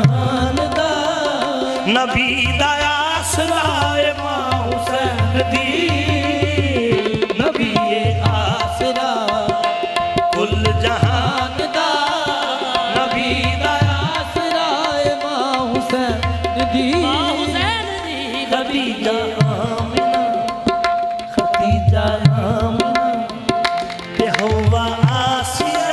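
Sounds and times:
hand drums beating: 0:19.4 - 0:25.9.

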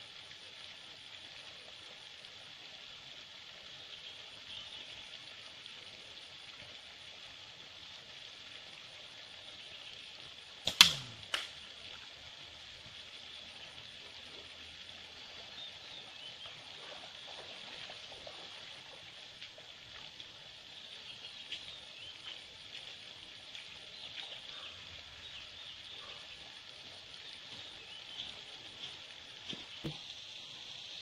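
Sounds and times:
stream trickling: 0:00.0 - 0:31.0
insects chirring: 0:09.2 - 0:31.0.

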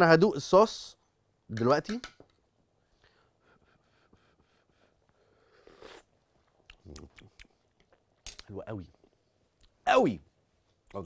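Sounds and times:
mouth clicks: 0:05.7 - 0:07.9.

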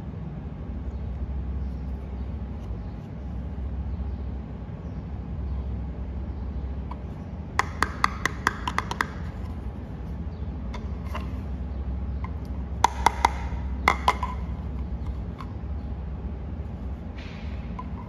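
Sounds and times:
steady low hum: 0:00.0 - 0:18.0
plastic toy tapping clicks: 0:07.6 - 0:09.3.

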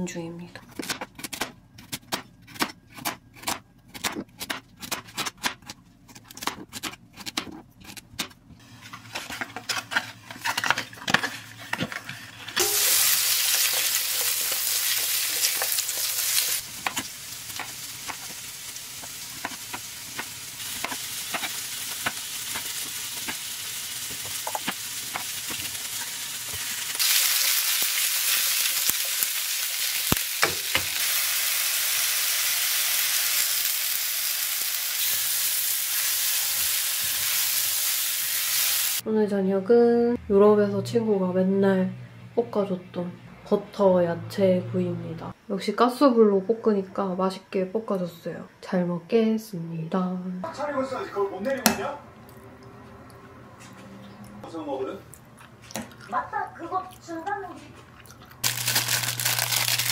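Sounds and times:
spatula knocking and scraping: 0:00.8 - 0:12.6
vegetables sizzling in pan: 0:12.5 - 0:39.0, 0:58.4 - 0:59.9.

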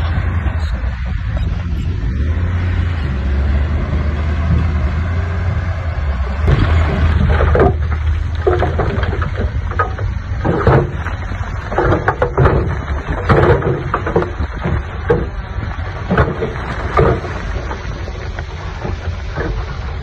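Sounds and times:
diesel machinery rumbling: 0:00.0 - 0:20.0
clanks and knocks: 0:06.3 - 0:20.0.

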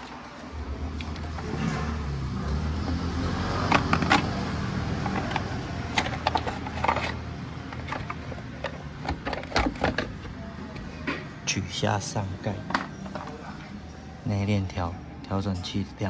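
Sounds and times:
plastic knocks and clatters: 0:02.9 - 0:10.4.

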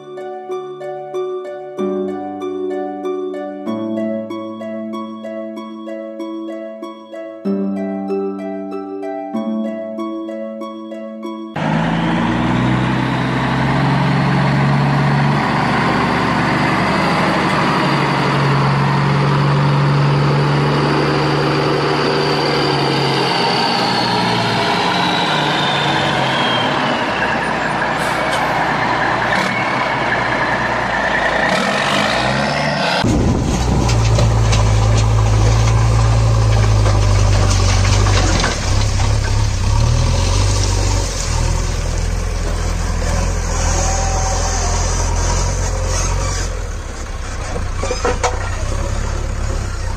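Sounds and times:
truck engine running: 0:11.6 - 0:49.9.

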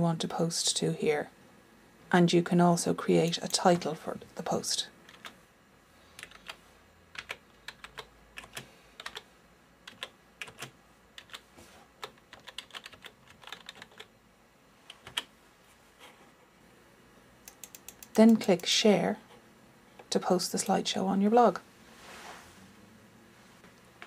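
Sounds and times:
keyboard typing: 0:05.1 - 0:05.4, 0:06.2 - 0:14.1, 0:14.9 - 0:15.3, 0:17.4 - 0:18.7.

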